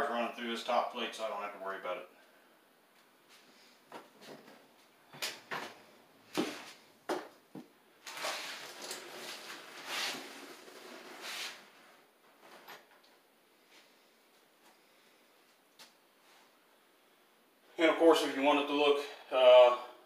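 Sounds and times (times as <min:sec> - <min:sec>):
tools rustling and scraping: 0:08.0 - 0:14.0.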